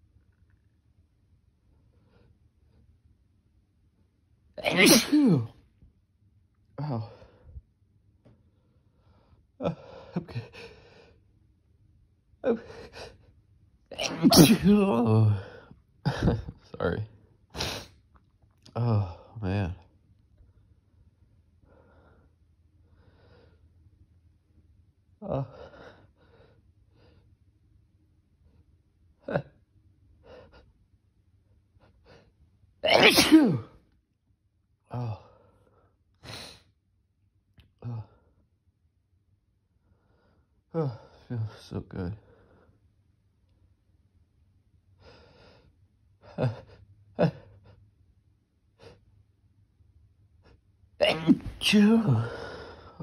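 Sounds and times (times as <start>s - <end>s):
loud sneeze: 4.6s - 5.6s, 13.9s - 15.3s, 17.6s - 18.0s, 32.8s - 33.8s, 51.0s - 52.4s.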